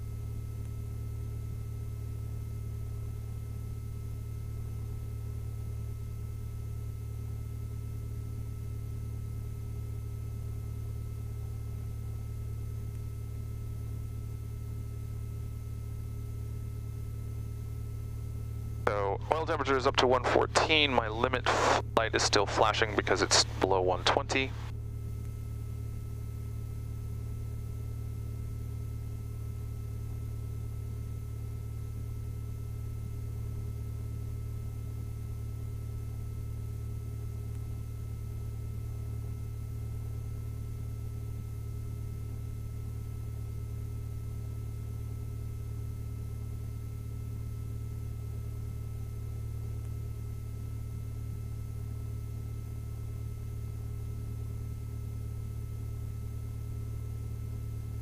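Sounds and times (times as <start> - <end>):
aircraft engine idling: 18.9 - 24.7.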